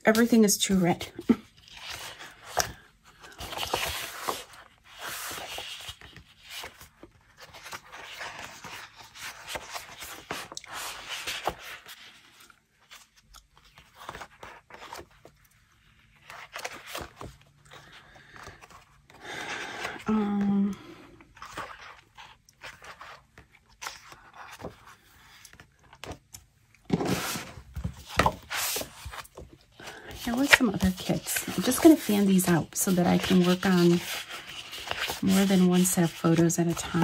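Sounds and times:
paper sheets rustling and sliding: 26.9s - 37.0s.

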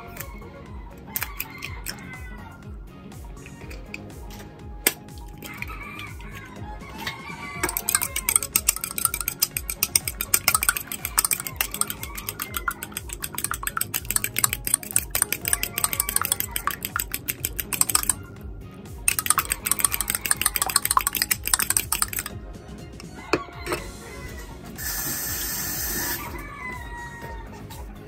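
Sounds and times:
quiet music: 0.0s - 28.0s
fork beating eggs in bowl: 1.2s - 2.1s, 5.4s - 18.2s, 19.1s - 22.4s.

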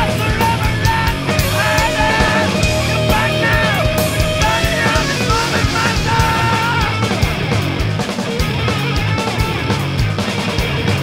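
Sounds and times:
loud rock music: 0.0s - 11.0s.

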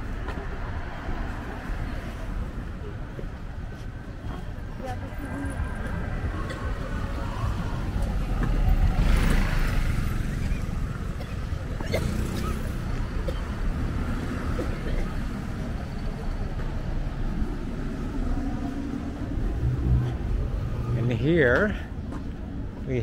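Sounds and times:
low rumble of cars: 0.0s - 23.0s
vehicle passing close: 6.2s - 14.5s.

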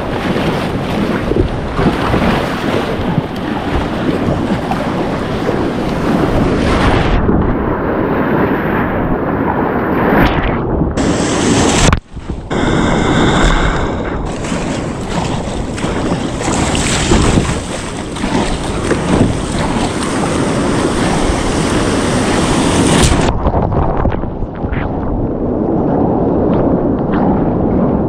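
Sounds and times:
sea waves splashing: 0.0s - 7.2s, 11.0s - 23.3s
wind buffeting microphone: 0.0s - 28.0s.

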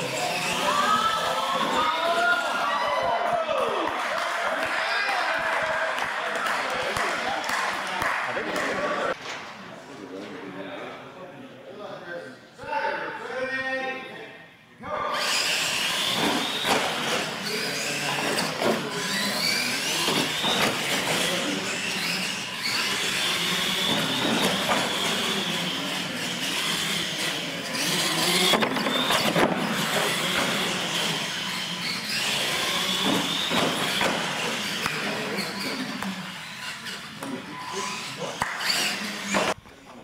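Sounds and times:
electric motors whining: 0.0s - 2.7s, 15.2s - 39.6s.

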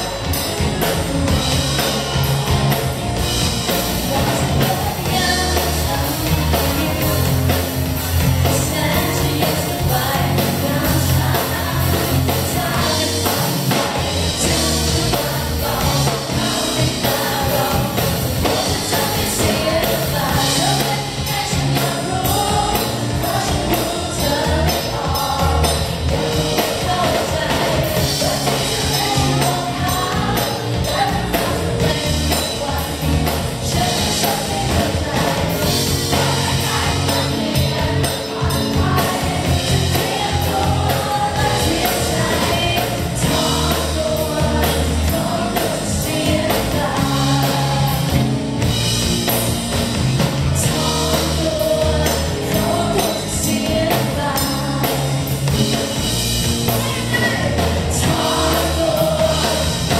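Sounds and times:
rock band with electric guitar: 0.0s - 59.9s
woman singing into a microphone: 4.0s - 7.5s, 8.4s - 48.2s, 50.6s - 55.2s.

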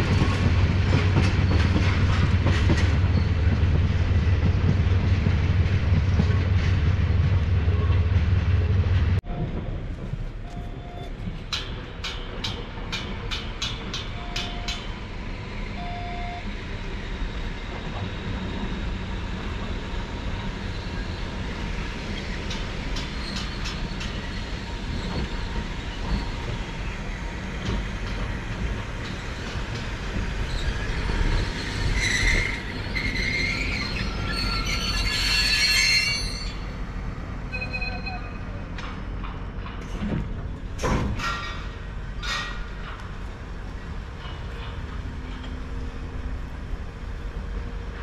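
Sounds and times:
electric locomotives rumbling: 0.0s - 48.0s
wheels squealing: 30.4s - 36.8s.

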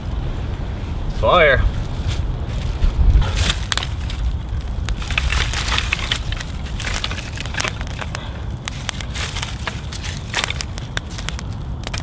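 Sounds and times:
steady low rumble: 0.0s - 12.0s
wooden sticks clacking together: 4.9s - 12.0s.

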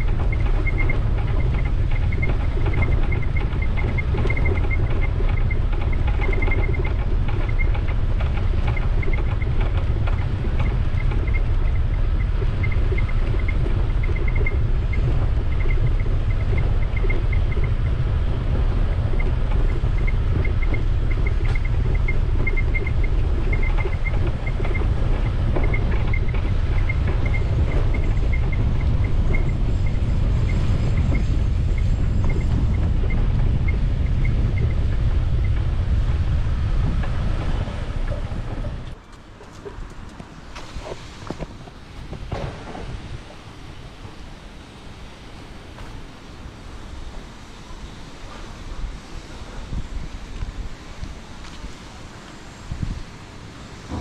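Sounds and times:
faint high ticking: 0.0s - 40.3s
wind buffeting microphone: 0.0s - 54.0s.

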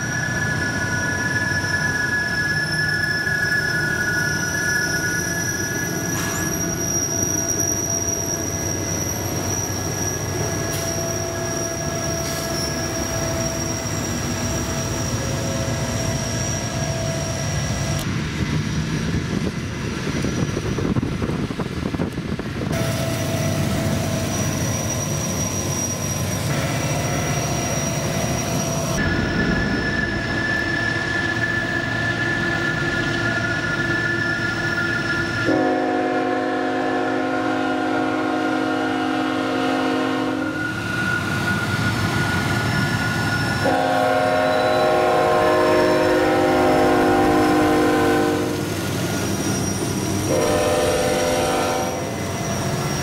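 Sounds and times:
moving train rumble: 0.0s - 53.0s
train air horn blasts: 35.4s - 40.7s, 43.6s - 48.8s, 50.2s - 52.2s.

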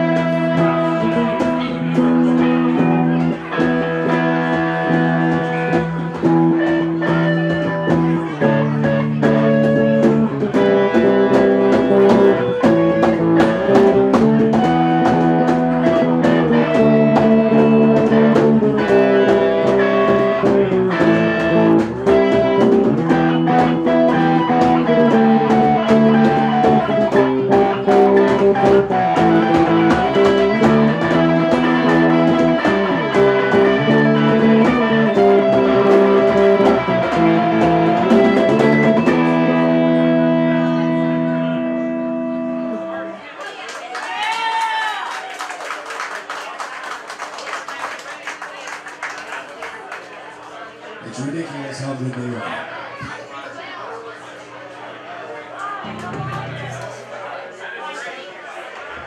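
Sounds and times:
congas beat: 0.0s - 39.6s
electric guitars: 0.0s - 45.4s, 52.1s - 57.4s.

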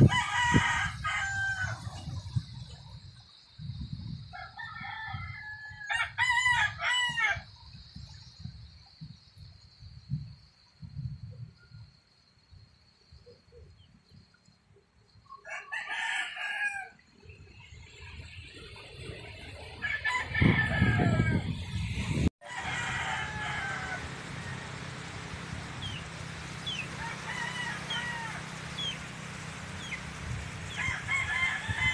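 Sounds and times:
rooster crowing: 0.0s - 2.0s, 4.3s - 7.5s, 15.3s - 17.0s, 19.8s - 21.7s, 22.4s - 30.0s, 30.6s - 31.9s.

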